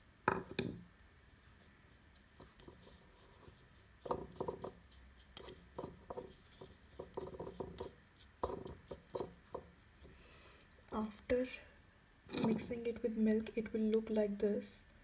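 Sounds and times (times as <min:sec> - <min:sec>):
gritty powder rubbing in bowl: 0:01.2 - 0:10.1.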